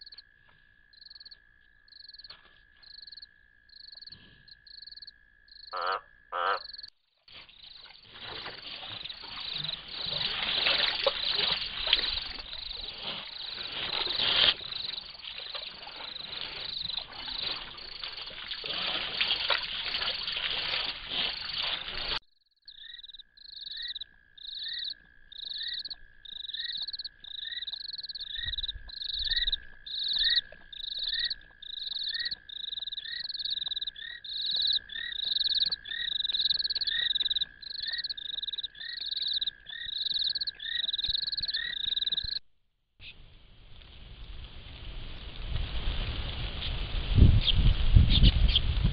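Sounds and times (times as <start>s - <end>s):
frogs and insects chorus: 0.0s - 42.4s
high frog call: 0.0s - 42.4s
low frog trill: 2.9s - 6.9s, 20.7s - 42.4s
water splashing and trickling: 7.3s - 22.2s, 25.4s - 42.4s.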